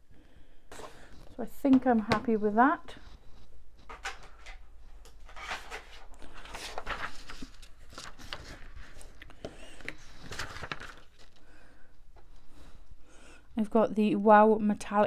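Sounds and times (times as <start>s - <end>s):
paper rustling: 3.0s - 11.6s.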